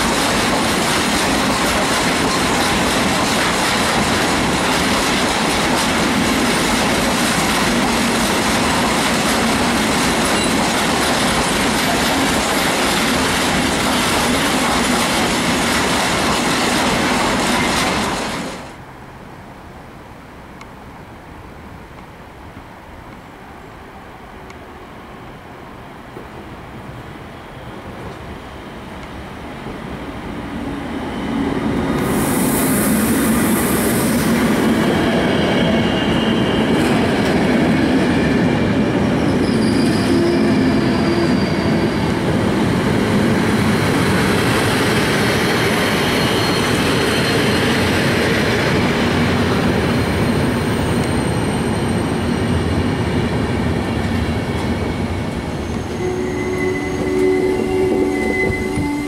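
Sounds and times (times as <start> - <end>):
train wheels on rails: 0.0 - 18.9, 23.1 - 59.0
electric locomotive passing: 0.0 - 21.8, 22.7 - 59.0
high wheel squeal: 39.1 - 42.4, 44.4 - 48.2, 49.8 - 53.1, 55.4 - 59.0.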